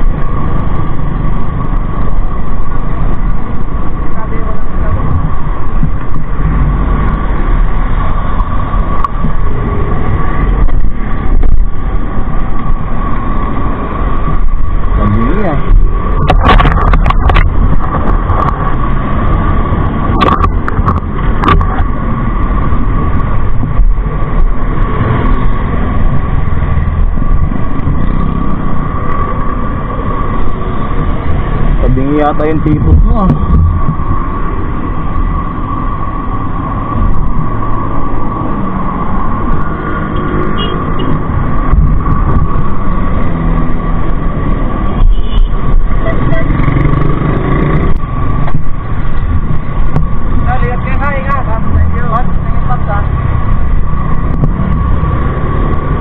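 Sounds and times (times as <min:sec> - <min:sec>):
high whine: 0:00.0 - 0:56.0
road traffic rumble: 0:00.0 - 0:56.0
sharp knocks and clicks: 0:15.7 - 0:18.8, 0:20.1 - 0:21.9.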